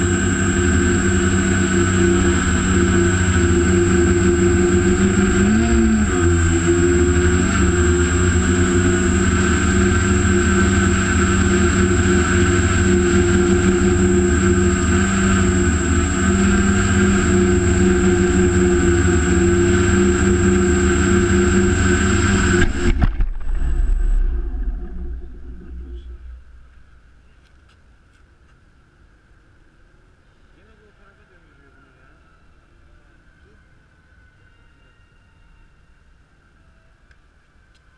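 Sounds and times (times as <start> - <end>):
drone motors whirring with whine: 0.0 - 27.8.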